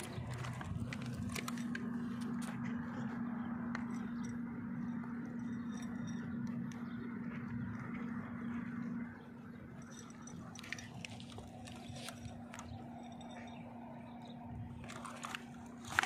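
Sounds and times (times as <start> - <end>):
cat crunching dry kibble: 0.0 - 4.2, 10.3 - 13.5, 14.7 - 16.0
steady low hum: 0.0 - 16.0.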